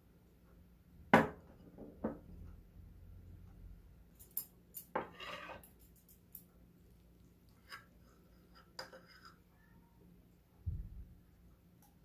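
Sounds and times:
spoon scraping plate: 0:05.0 - 0:05.9, 0:07.5 - 0:09.5.

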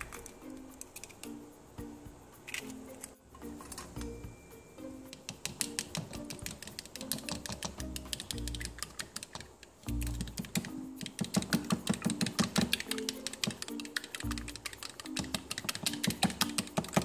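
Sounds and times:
fork beating egg in bowl: 0:05.1 - 0:17.0.

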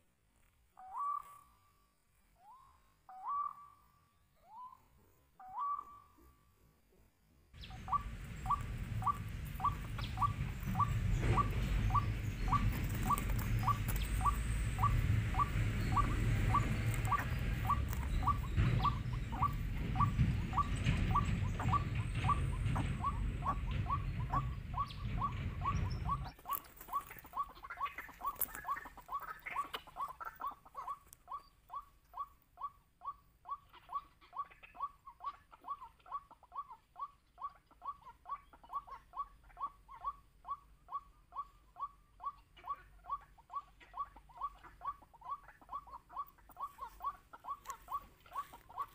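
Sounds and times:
waterhen calls: 0:00.8 - 0:01.5, 0:02.4 - 0:03.8, 0:05.4 - 0:06.2, 0:07.6 - 0:48.9
loud low rumble: 0:07.6 - 0:26.4.

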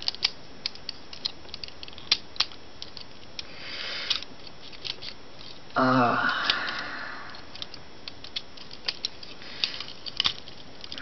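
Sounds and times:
plastic toy joints clicking: 0:00.0 - 0:03.5, 0:04.1 - 0:05.6, 0:07.3 - 0:11.0.

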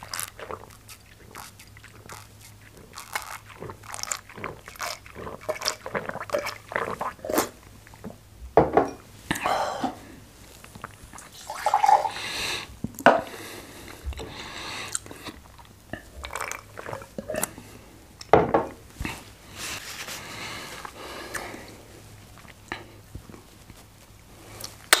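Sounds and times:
chewing mouth noises: 0:00.0 - 0:08.2, 0:10.5 - 0:11.3.

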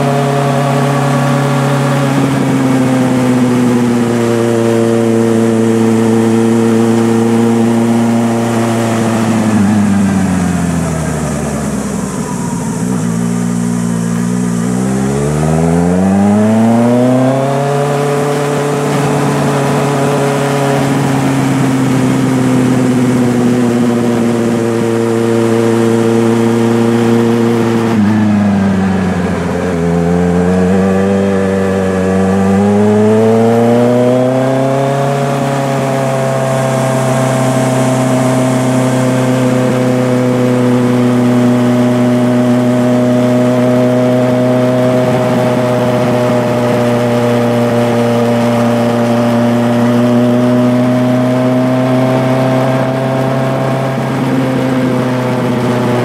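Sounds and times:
engine running: 0:00.0 - 0:56.0.

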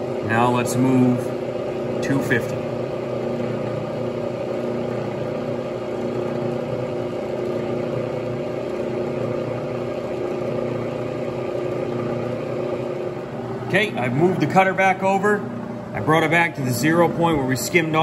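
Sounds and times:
milling machine humming: 0:00.0 - 0:18.0.

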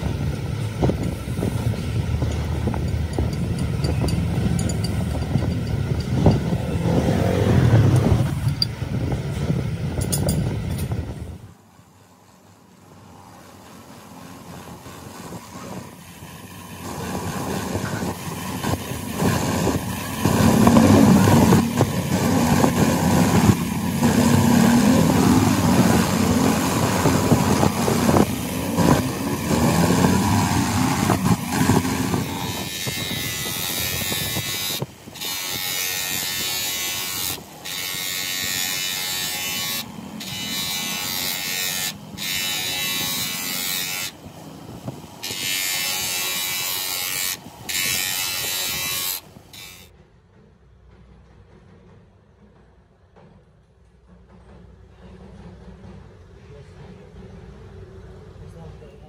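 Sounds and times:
buffing wheel polishing steel: 0:13.0 - 0:49.9
wire brush wheel scrubbing metal: 0:14.0 - 0:49.9.

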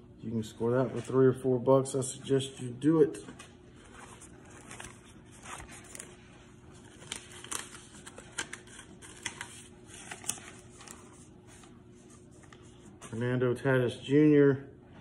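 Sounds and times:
plastic sleeve and paper rustling: 0:03.2 - 0:13.2.

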